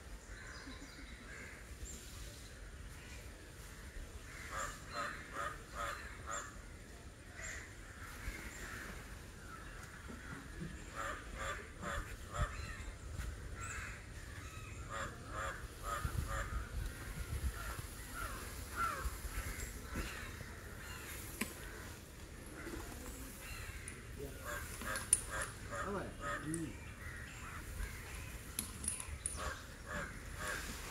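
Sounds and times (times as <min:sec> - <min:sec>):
crows cawing: 0:04.2 - 0:06.6, 0:07.4 - 0:12.8, 0:13.6 - 0:16.8, 0:17.5 - 0:30.9.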